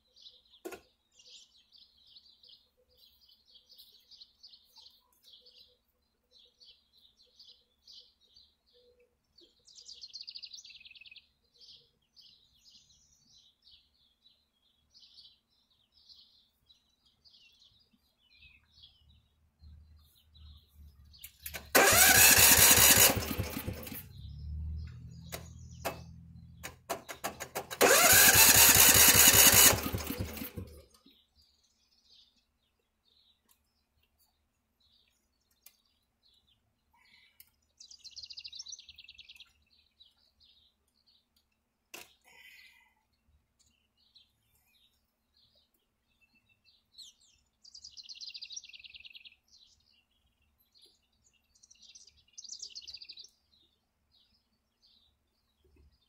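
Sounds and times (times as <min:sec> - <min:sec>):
birds chirping faintly: 0:00.0 - 0:56.0
electric starter cranking engine: 0:21.4 - 0:30.9.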